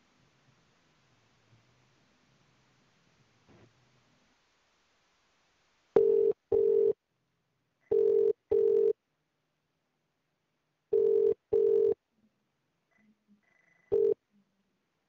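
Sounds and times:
telephone ringback tone: 6.0s - 7.0s, 7.9s - 9.0s, 10.9s - 12.0s, 13.9s - 14.2s.

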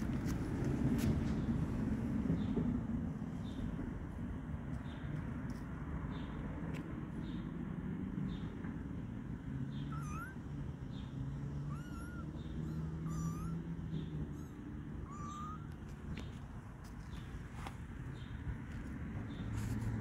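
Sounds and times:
kitten mewing: 9.9s - 10.5s, 11.7s - 15.9s.

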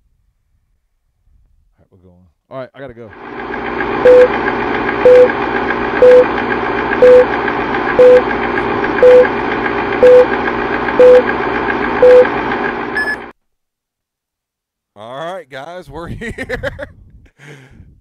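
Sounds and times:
film projector rattle: 3.1s - 13.0s
short beeps: 4.0s - 4.3s, 5.0s - 5.3s, 6.0s - 6.3s, 7.0s - 7.3s, 8.0s - 8.3s, 9.0s - 9.3s, 10.0s - 10.3s, 11.0s - 11.3s, 12.0s - 12.3s, 13.0s - 13.3s.

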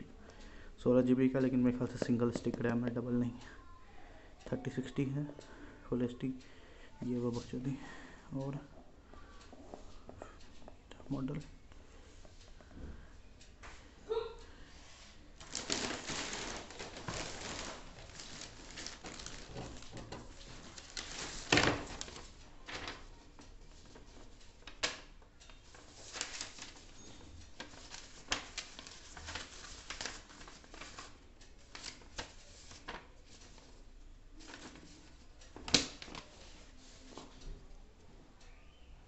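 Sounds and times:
rustling and crinkling: 14.8s - 37.8s.

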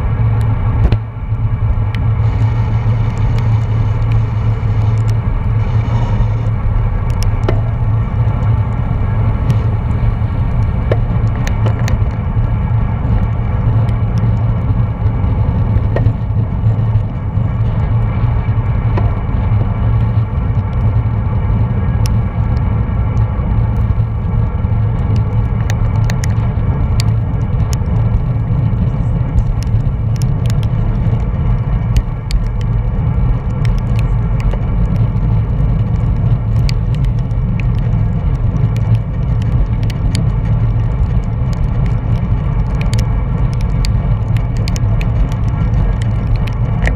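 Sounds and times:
wind and road noise: 0.0s - 46.9s
faint clicks: 35.9s - 46.9s.

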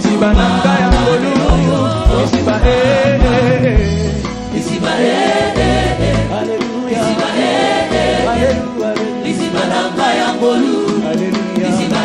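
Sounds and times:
choir singing: 0.0s - 3.9s, 4.5s - 12.0s
low bass notes: 0.2s - 4.8s, 5.4s - 6.5s, 7.9s - 8.7s.

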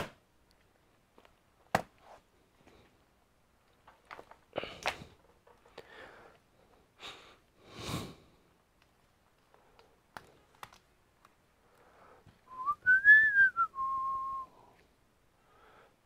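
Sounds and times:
handling rustle: 3.6s - 6.9s
person whistling: 12.5s - 14.6s.

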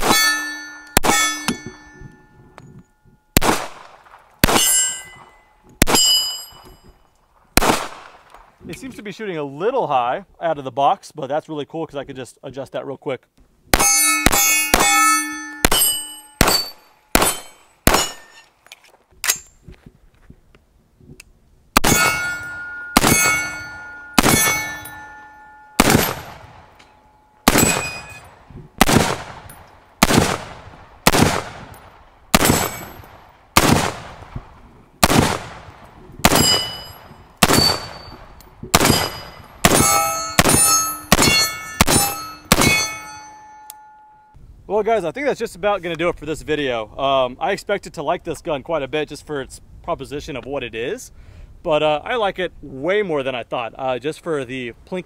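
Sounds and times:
pistol gunshots with echo: 0.0s - 2.0s, 3.4s - 6.6s, 7.6s - 8.3s, 13.7s - 18.3s, 21.8s - 26.8s, 27.4s - 43.2s
steel plates clanging: 0.0s - 3.2s, 4.5s - 7.0s, 13.8s - 18.5s, 21.8s - 28.4s, 36.3s - 44.4s.

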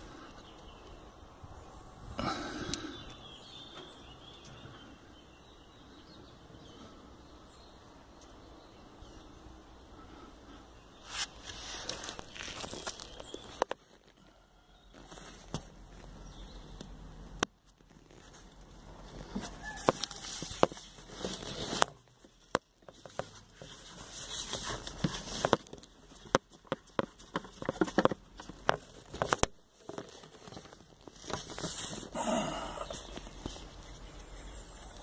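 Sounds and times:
rustling: 10.0s - 16.9s, 17.6s - 35.0s.

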